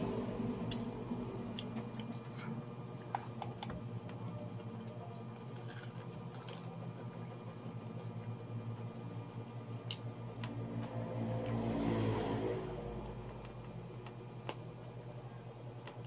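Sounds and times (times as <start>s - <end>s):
steady low hum: 0.0s - 16.0s
chewing crispy food crunches: 4.6s - 6.8s.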